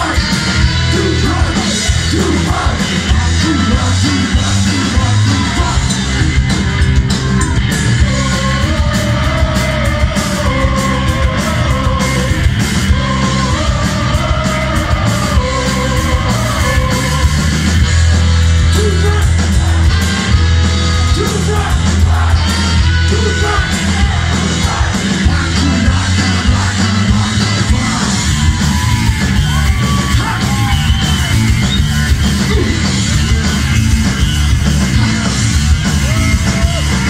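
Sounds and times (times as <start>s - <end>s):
person shouting lead vocal: 0.0s - 6.2s, 18.7s - 19.4s, 21.0s - 26.9s
punk rock band playing: 0.0s - 37.0s.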